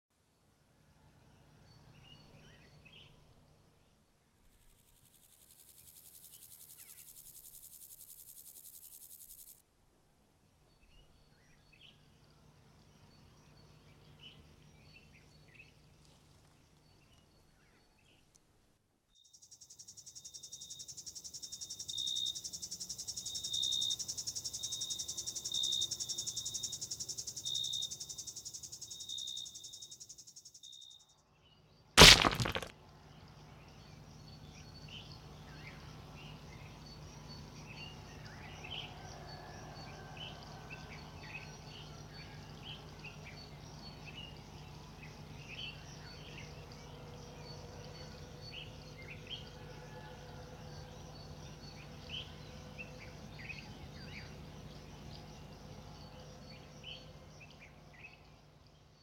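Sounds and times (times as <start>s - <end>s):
faint insects chirping: 3.8s - 9.6s, 19.1s - 31.2s
loud crack: 32.0s - 32.7s.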